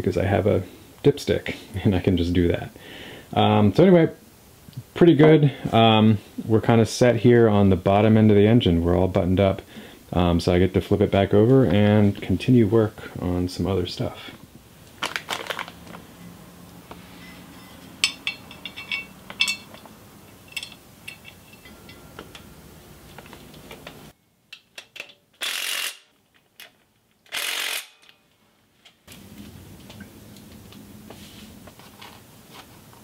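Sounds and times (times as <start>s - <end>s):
metal parts clinking: 17.2s - 22.4s.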